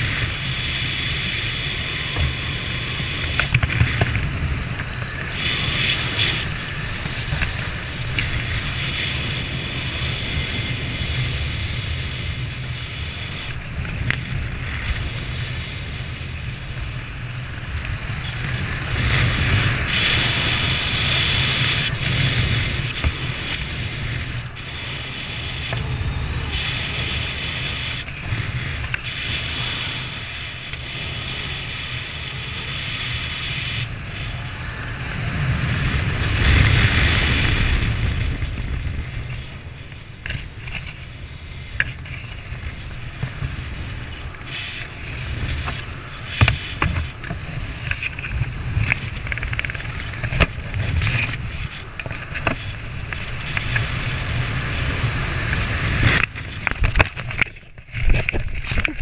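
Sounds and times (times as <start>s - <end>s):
wind buffeting microphone: 0.0s - 59.0s
sharp clicks and rustles: 44.1s - 59.0s.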